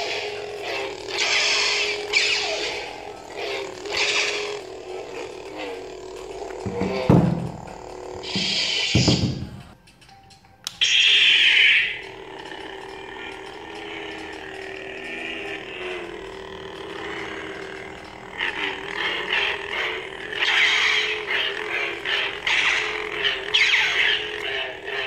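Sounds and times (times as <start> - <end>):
lightsaber swing sounds: 0.0 - 4.5
toy lightsaber buzzing hum: 0.0 - 9.8, 10.7 - 25.0.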